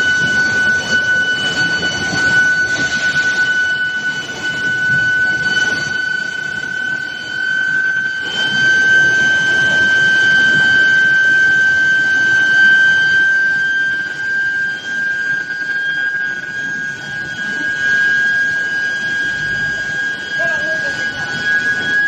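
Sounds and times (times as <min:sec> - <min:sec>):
high-pitched furnace whine: 0:00.0 - 0:22.0
rough machinery rumble: 0:15.3 - 0:22.0.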